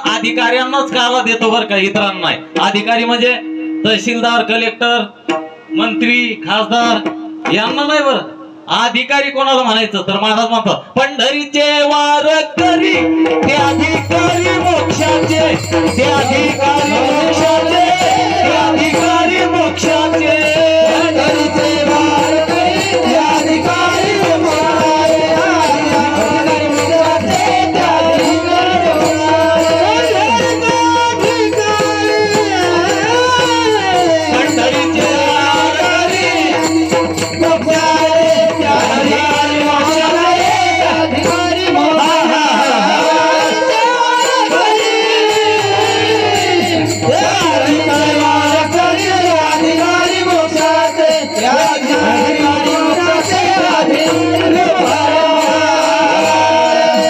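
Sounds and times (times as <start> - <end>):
chorus singing devotional refrain: 11.6 - 57.0
drum: 12.6 - 57.0
harmonium holding notes: 13.2 - 57.0.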